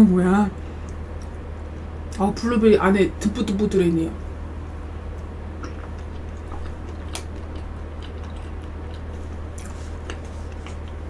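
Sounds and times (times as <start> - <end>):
steady low hum: 0.0 - 11.0
person chewing with wet clicks: 0.8 - 2.2, 4.7 - 11.0.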